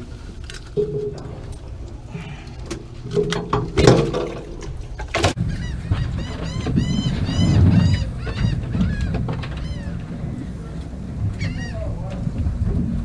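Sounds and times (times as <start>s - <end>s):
handling knocks and rustles: 0.0s - 5.4s
gull calls: 5.4s - 10.2s, 11.4s - 11.9s.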